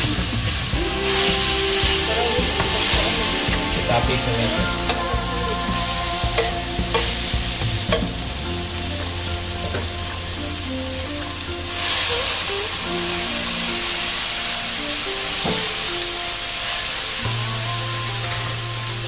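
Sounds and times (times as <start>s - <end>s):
food sizzling in a wok: 0.0s - 19.0s.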